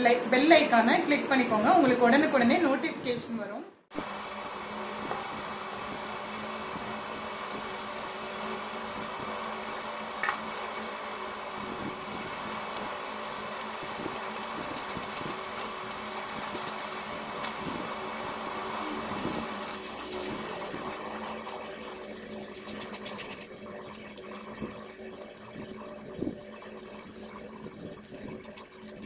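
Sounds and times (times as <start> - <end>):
small electric motor humming: 3.9 - 29.0
paper handling: 19.0 - 23.5.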